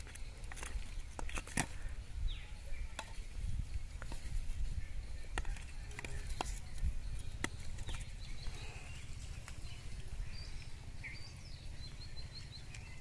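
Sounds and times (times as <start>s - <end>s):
bamboo sticks and bottles clicking: 0.0s - 1.9s, 5.2s - 8.2s.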